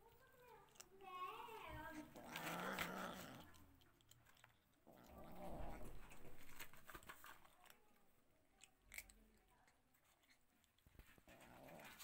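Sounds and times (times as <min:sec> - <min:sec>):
kibble crunching: 0:00.0 - 0:12.0
cat growling: 0:01.9 - 0:03.7, 0:04.8 - 0:06.6, 0:11.2 - 0:12.0.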